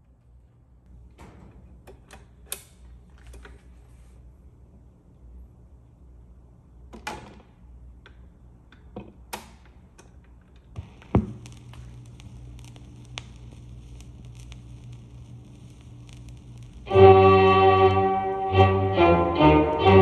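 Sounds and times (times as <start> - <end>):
vinyl crackles: 10.6 - 16.9
low hum: 10.8 - 20.0
stylus thump: 11.2 - 11.5.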